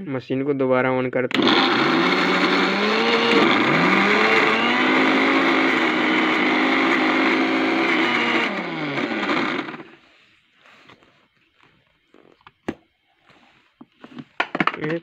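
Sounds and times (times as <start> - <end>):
mixer grinder motor running: 1.3 - 10.1.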